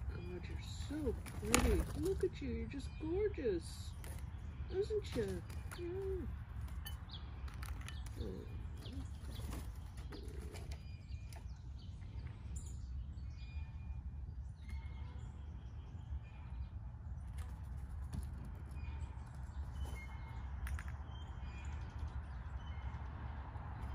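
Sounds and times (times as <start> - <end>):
small birds chirping: 0.0 - 23.9
bird wings flapping: 1.1 - 2.3.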